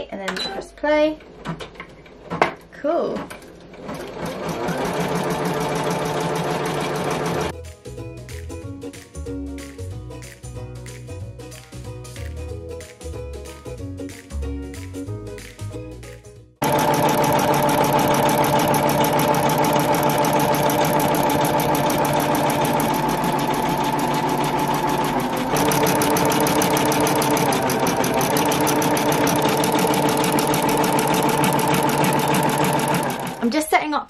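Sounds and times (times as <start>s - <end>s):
background music: 5.5s - 34.0s
embroidery machine needle strokes: 16.6s - 33.4s
machine motor hum: 16.6s - 33.4s.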